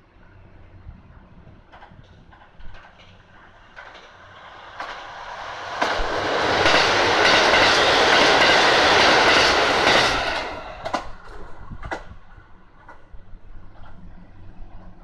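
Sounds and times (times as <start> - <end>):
train passing at high speed: 0.1 - 15.0
sharp clacks of train wheels: 1.7 - 14.0.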